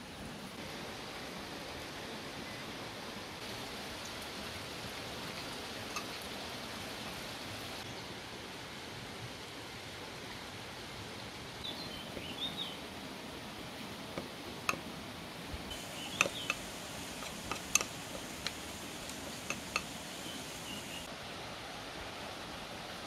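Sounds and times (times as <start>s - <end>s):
rushing open-air background noise: 0.0s - 23.0s
bird chirps: 11.6s - 12.8s, 15.7s - 17.9s, 19.5s - 21.1s.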